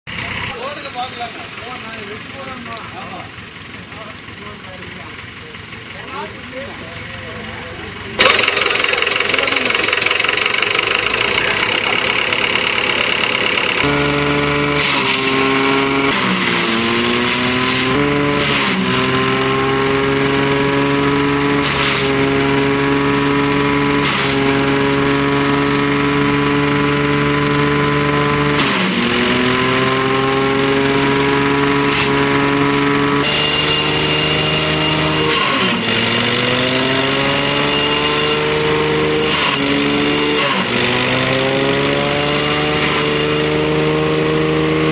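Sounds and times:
tractor diesel engine under load: 0.0 - 44.9
sharp cracks: 8.2 - 14.0.

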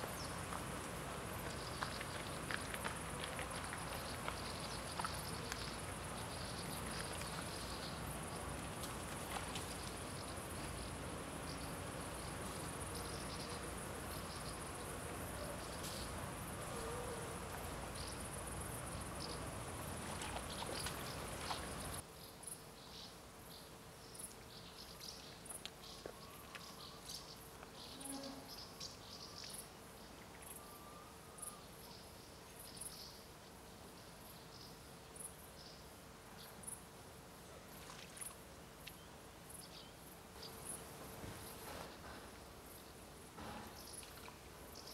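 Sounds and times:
insects chirring: 0.0 - 23.0.

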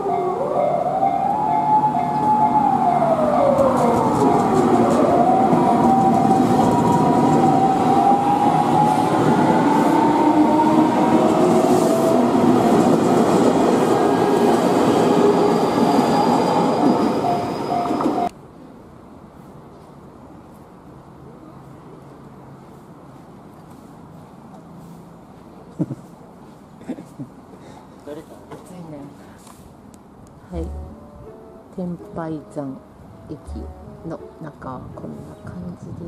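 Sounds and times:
train whine gliding in pitch: 0.0 - 18.4
train wheels rumbling on rails: 2.1 - 18.3.

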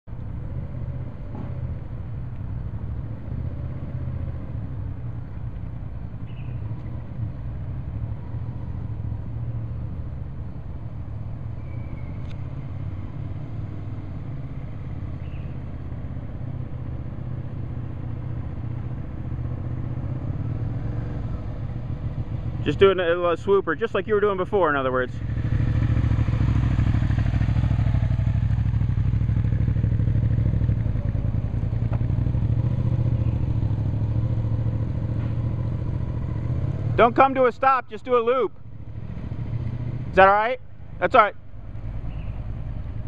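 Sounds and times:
motorcycle engine running: 24.2 - 37.4.

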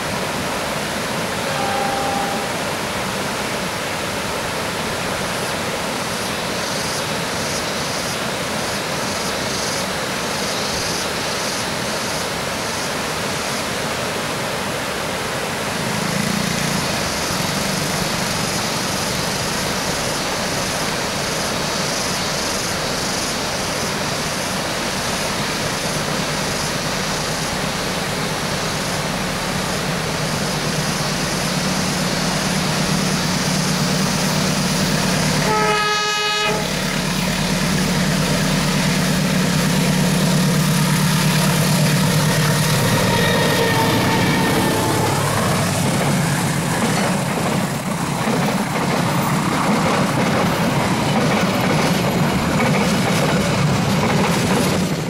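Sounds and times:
locomotive engine drone: 0.0 - 7.4, 15.4 - 55.0
locomotive horn blast: 1.3 - 2.9, 35.0 - 46.0
train wheels clattering on rails: 36.5 - 55.0.

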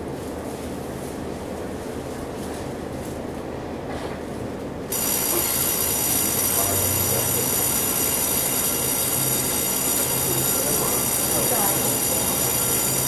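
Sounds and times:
train cabin low hum: 0.0 - 5.5
electrical buzz with high whine: 4.8 - 13.0.

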